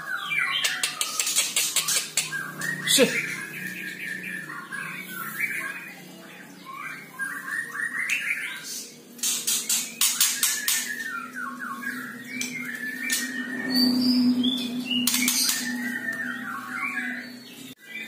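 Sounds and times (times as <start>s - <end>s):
sharp bird clicks: 0.6s - 2.8s, 9.2s - 11.0s, 15.0s - 15.7s.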